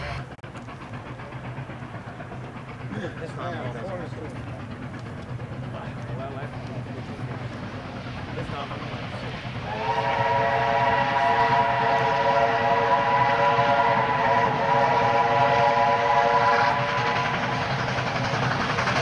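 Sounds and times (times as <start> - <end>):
steam locomotive whistle: 9.6 - 17.8.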